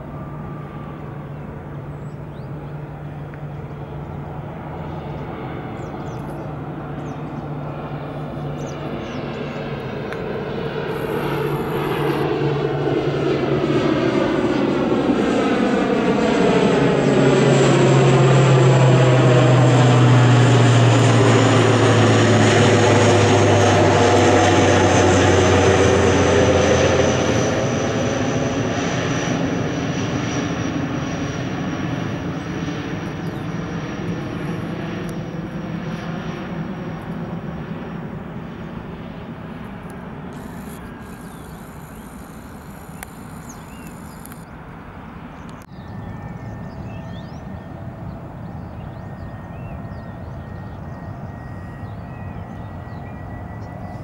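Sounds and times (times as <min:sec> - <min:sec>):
faint high whine: 0:00.0 - 0:12.4, 0:40.0 - 0:45.2
turboprop plane drone: 0:00.0 - 0:54.0.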